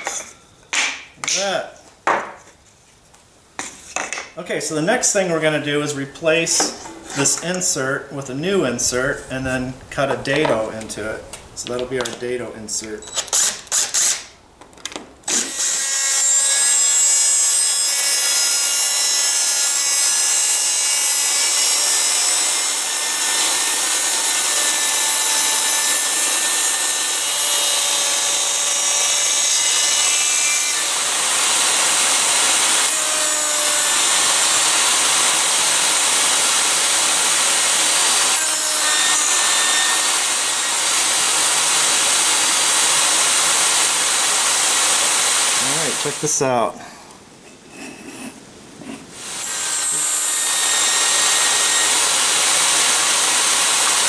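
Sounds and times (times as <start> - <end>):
table saw cutting wood: 5.5 - 11.0, 15.3 - 46.6, 49.1 - 54.0.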